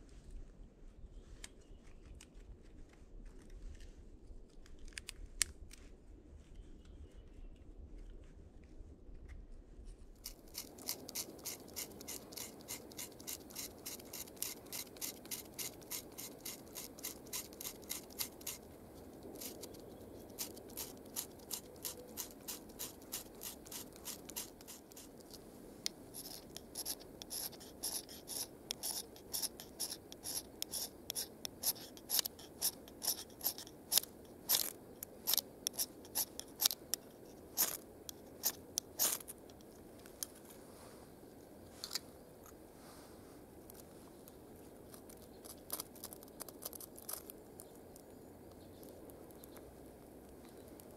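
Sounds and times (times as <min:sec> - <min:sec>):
blade scraping bark: 0:10.2 - 0:25.4, 0:26.1 - 0:39.4.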